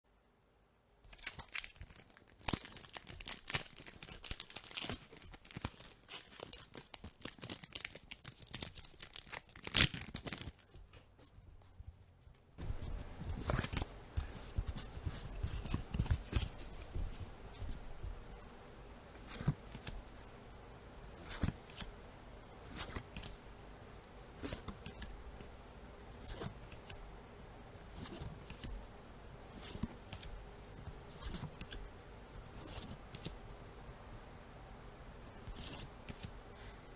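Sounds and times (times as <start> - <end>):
low steady hum: 0.1 - 36.9
foil wrapper crinkling and tearing: 1.1 - 10.6.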